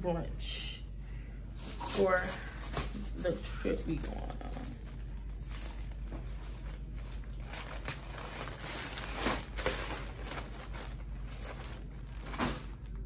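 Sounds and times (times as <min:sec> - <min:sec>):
clothes and packaging rustling: 0:01.5 - 0:13.0.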